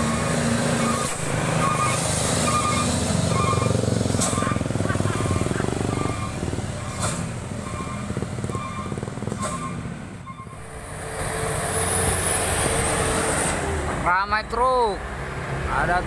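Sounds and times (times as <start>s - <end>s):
diesel truck engine: 0.0s - 16.0s
steady tone: 10.3s - 13.3s.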